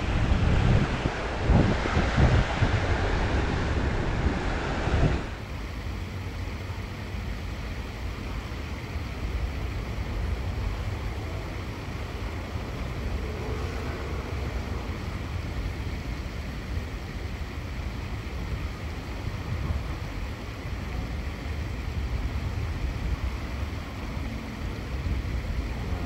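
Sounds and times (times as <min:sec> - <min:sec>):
wind buffeting microphone: 0:00.0 - 0:05.4.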